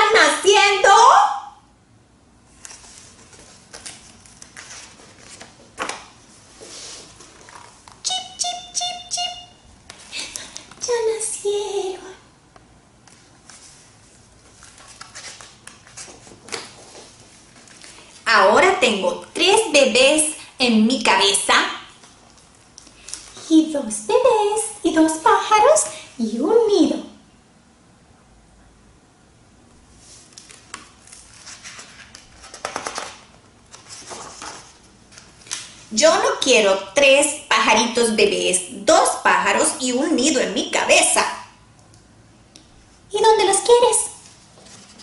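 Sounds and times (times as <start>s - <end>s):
woman's voice: 0.0s - 1.6s, 10.2s - 12.3s, 18.2s - 22.0s, 23.4s - 27.2s, 35.9s - 41.6s, 43.1s - 44.3s
book pages rustling and turning: 2.5s - 8.0s, 13.0s - 18.2s, 22.0s - 23.5s, 30.0s - 35.9s, 44.2s - 45.0s.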